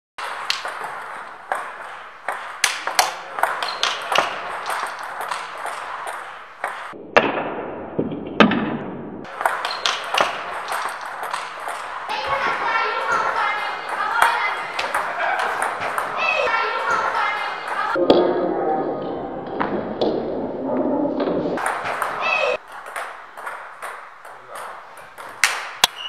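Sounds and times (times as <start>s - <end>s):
table tennis ball clicking: 0.2s - 7.0s, 9.3s - 12.1s, 21.6s - 26.0s.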